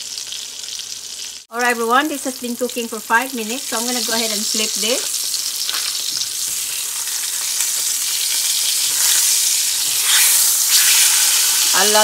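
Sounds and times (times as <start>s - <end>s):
fish sizzling in a pan: 0.0s - 12.0s.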